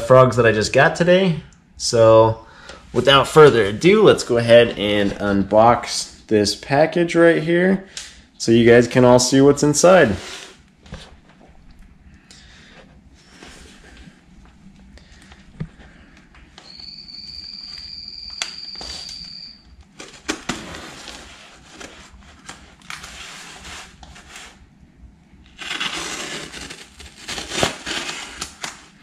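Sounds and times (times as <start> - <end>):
thin high tone: 16.6 - 19.7
plastic wrap tearing and crinkling: 25.5 - 29.0
blade cutting tape: 25.6 - 28.9.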